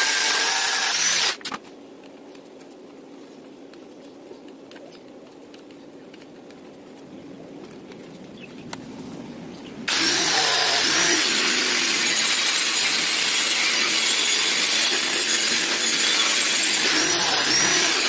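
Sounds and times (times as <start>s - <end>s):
angle grinder grinding metal pipe: 9.9s - 18.0s.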